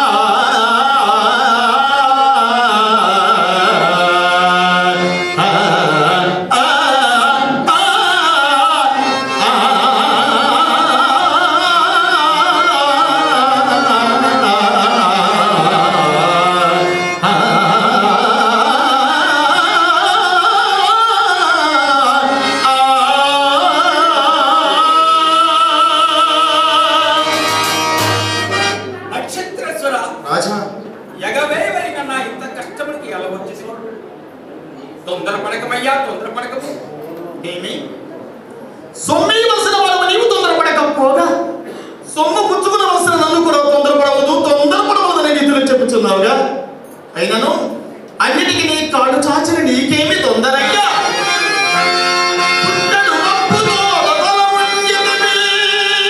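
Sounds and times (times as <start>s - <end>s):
man singing into a microphone: 0.0s - 27.6s, 52.6s - 56.0s.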